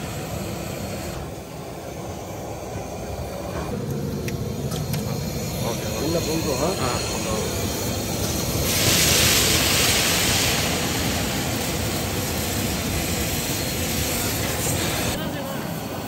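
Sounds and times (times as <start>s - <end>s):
low roar of gas flame: 0.0s - 16.0s
hot oil sizzling: 4.2s - 15.6s.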